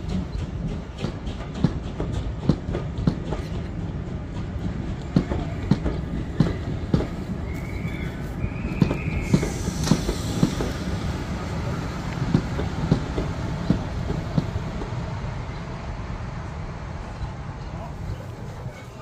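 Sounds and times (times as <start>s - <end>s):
train wheels clicking over rail joints: 0.0s - 15.2s
low train rumble: 0.0s - 19.0s.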